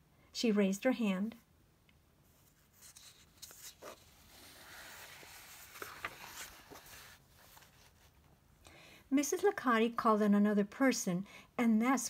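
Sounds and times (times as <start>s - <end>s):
paper page rustling: 2.3s - 8.2s.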